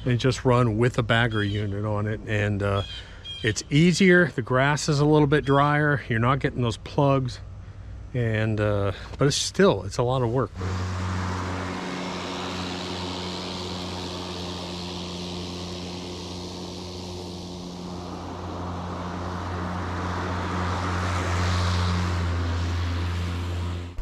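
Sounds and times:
electric lawn mower humming: 10.5s - 24.0s.

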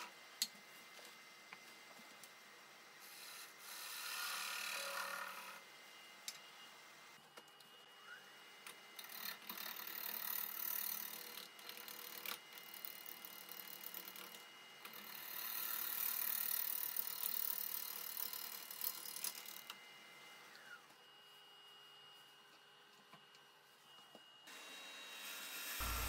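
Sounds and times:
lathe motor whine: 23.8s - 26.0s
gouge shearing wood: 25.5s - 26.0s.

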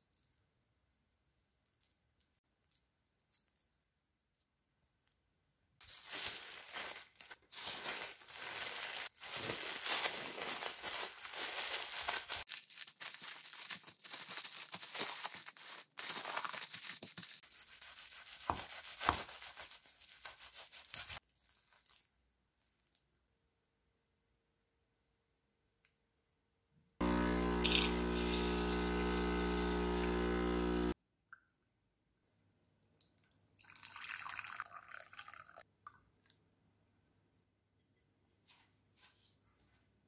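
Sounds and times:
cling wrap crinkling: 5.8s - 22.9s.

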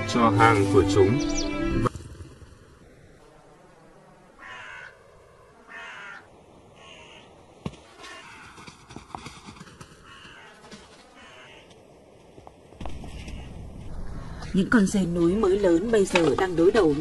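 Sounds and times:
harsh caw-like animal calls: 4.4s - 8.9s, 10.0s - 11.8s, 13.0s - 13.6s.

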